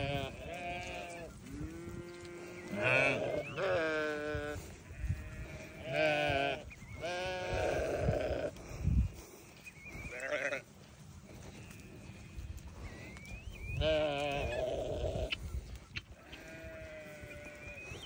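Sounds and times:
sheep bleating: 0.0 - 8.6, 10.1 - 10.7, 13.7 - 15.4, 16.2 - 17.9.

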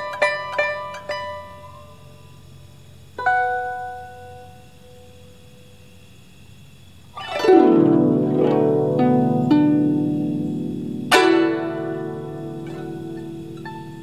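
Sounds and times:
plucked zither notes: 0.0 - 4.8, 7.2 - 14.0
zither strings sweep: 7.2 - 14.0.

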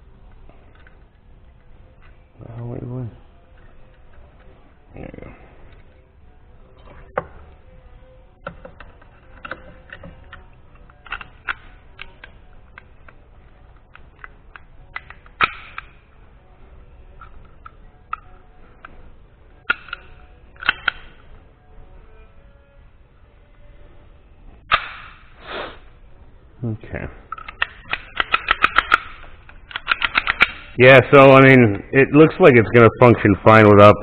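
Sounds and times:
pistol parts clicking: 0.2 - 2.7, 3.4 - 4.5, 6.8 - 21.4, 24.7 - 25.4, 27.3 - 30.8.

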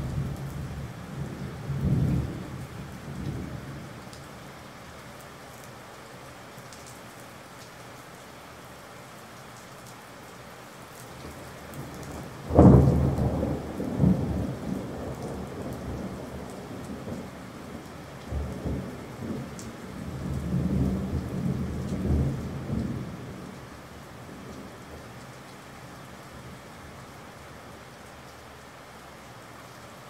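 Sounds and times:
steady rain: 0.0 - 30.0.

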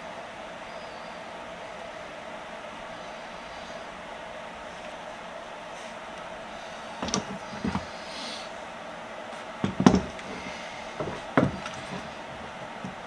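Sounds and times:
faint steady hum: 0.0 - 13.0
clamp parts knocking and clicking: 7.0 - 7.9, 9.6 - 13.0.

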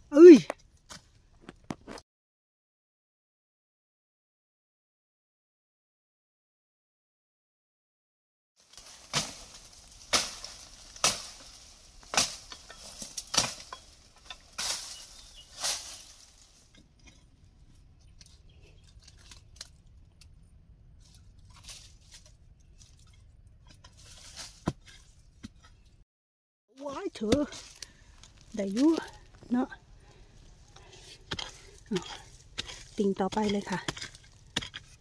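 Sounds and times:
spade striking hard soil: 8.8 - 16.2, 30.8 - 35.0.

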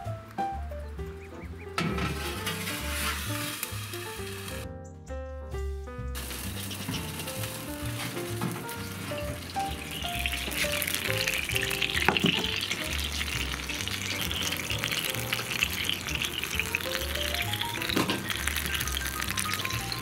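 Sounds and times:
background music with bass: 0.0 - 20.0
food sizzling and crackling: 2.1 - 4.6, 6.2 - 20.0.

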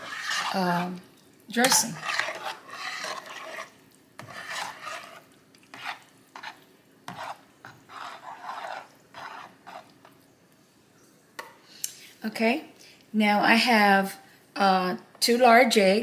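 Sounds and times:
potato masher squelching: 1.6 - 6.5.

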